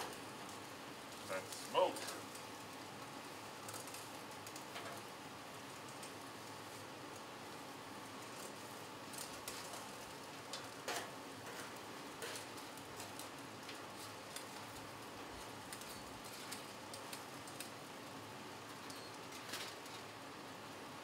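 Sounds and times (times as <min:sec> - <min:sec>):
steady faint hiss: 0:00.0 - 0:21.0
metal tongs clicking on griddle: 0:03.6 - 0:05.1, 0:08.2 - 0:14.8, 0:15.4 - 0:17.8.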